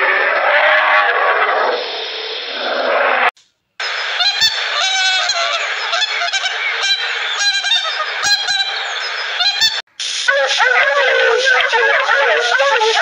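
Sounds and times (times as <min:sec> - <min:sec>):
geese honking: 0:03.8 - 0:13.0.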